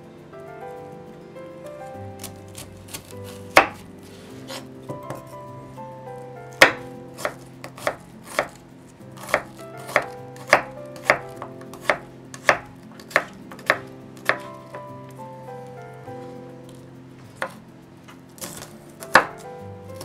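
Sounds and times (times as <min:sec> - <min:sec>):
knife chopping on wooden board: 0:02.2 - 0:03.9, 0:06.6 - 0:08.6, 0:09.2 - 0:14.8, 0:17.4 - 0:17.6, 0:18.4 - 0:19.4.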